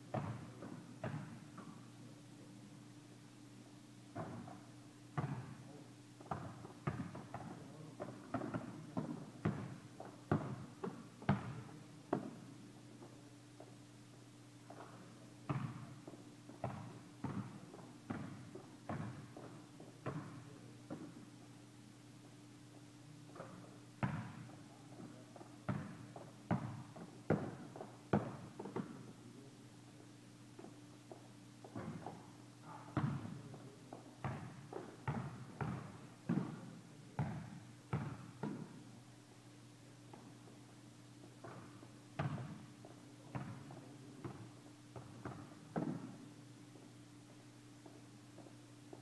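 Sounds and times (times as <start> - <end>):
basketball bouncing on court: 0.1 - 1.8, 4.2 - 5.6, 6.2 - 12.4, 14.7 - 21.2, 23.3 - 24.6, 25.4 - 29.1, 30.6 - 32.2, 32.8 - 33.4, 34.2 - 36.6, 37.2 - 38.8, 41.4 - 44.4, 45.0 - 46.2.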